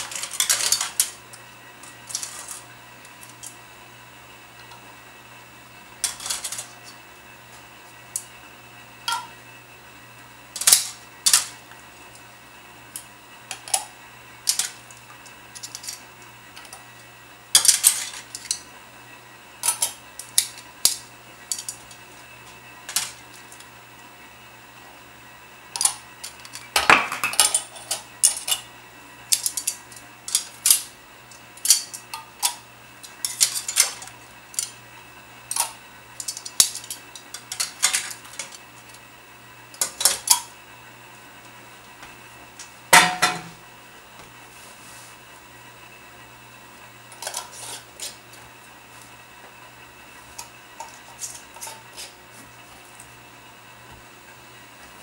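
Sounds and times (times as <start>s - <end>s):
metal tongs clinking on pot: 9.1s - 9.3s.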